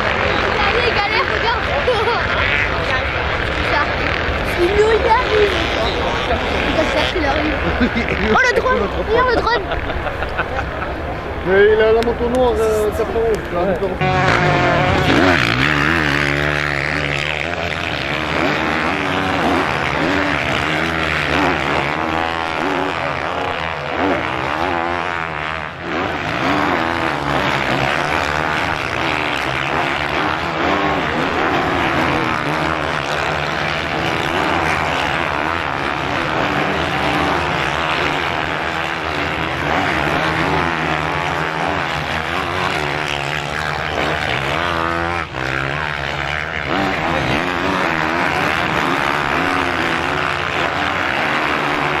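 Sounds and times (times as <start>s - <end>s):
motocross bikes engine buzz: 0.0s - 52.0s
motorbike revving: 0.0s - 52.0s.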